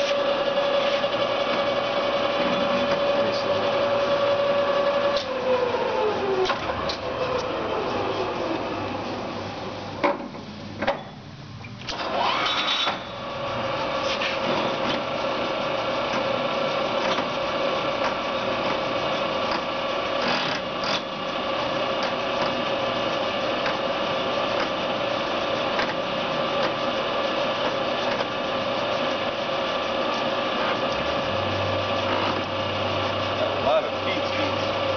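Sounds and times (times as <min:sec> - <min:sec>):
lathe gears whining: 0:00.0 - 0:10.0, 0:11.9 - 0:34.9
deep hum: 0:30.8 - 0:34.9.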